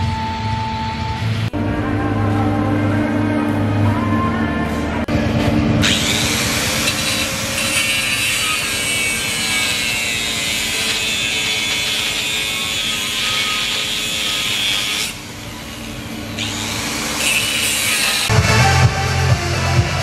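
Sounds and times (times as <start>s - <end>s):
angle grinder cutting metal pipe: 5.8s - 18.3s.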